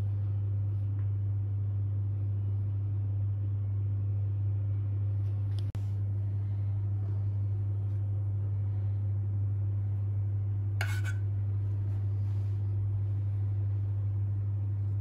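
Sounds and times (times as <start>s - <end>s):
steady low hum: 0.0s - 15.0s
spoon clinking against pot: 10.8s - 11.2s.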